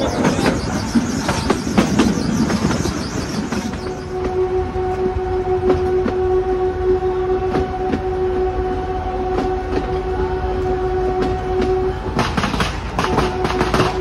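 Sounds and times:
train wheels clicking on rail joints: 0:00.0 - 0:06.4, 0:09.3 - 0:10.1, 0:11.2 - 0:14.0
train horn long note: 0:03.5 - 0:14.0
firecrackers crackling: 0:12.2 - 0:14.0.

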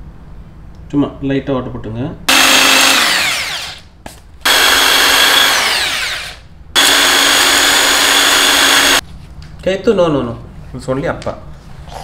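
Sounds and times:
drill winding down whine: 0:02.3 - 0:09.0
electric drill boring into wood: 0:02.3 - 0:09.0.

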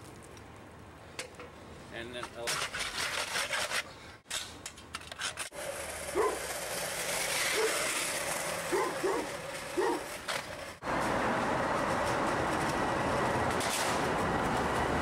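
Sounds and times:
small wheels rolling on concrete: 0:00.0 - 0:15.0
wheel squeaks: 0:05.0 - 0:10.6.

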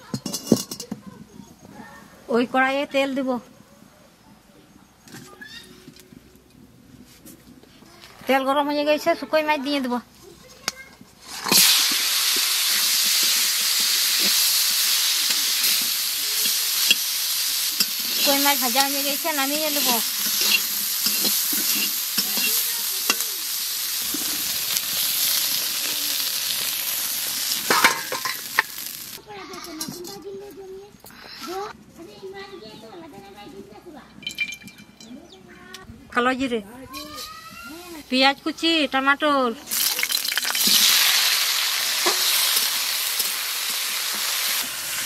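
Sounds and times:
fish sizzling in hot oil: 0:11.2 - 0:29.2, 0:39.7 - 0:45.0
spatula scraping a pan: 0:12.6 - 0:23.2
fish clattering into steel bowl: 0:39.8 - 0:41.0.

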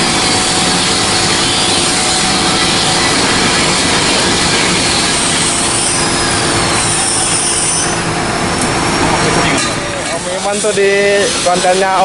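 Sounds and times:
power sander grinding: 0:00.0 - 0:08.0.

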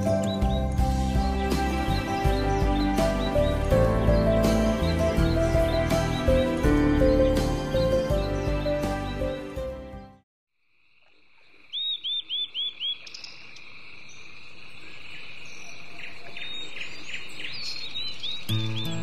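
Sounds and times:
background music: 0:00.0 - 0:10.2, 0:18.5 - 0:19.0.

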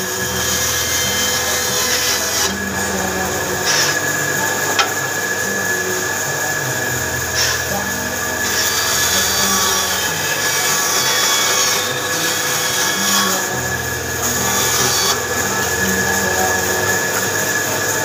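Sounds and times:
electric motor whine: 0:00.0 - 0:18.0
wood rasping against sander: 0:00.0 - 0:18.0.

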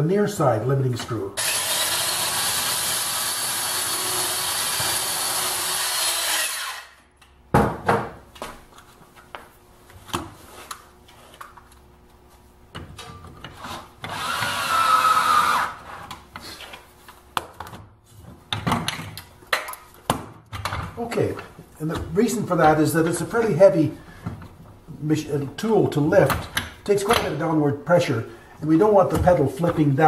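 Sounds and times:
electric drill boring: 0:01.4 - 0:07.0, 0:14.0 - 0:15.8.

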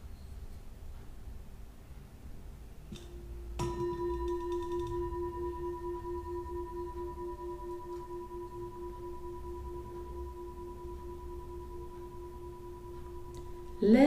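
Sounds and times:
singing bowl ringing: 0:03.0 - 0:14.0.

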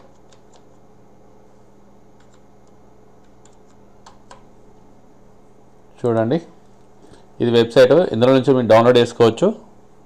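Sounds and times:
keyboard keys clicking: 0:00.0 - 0:00.8, 0:02.2 - 0:04.5
low electrical hum: 0:00.0 - 0:10.0.

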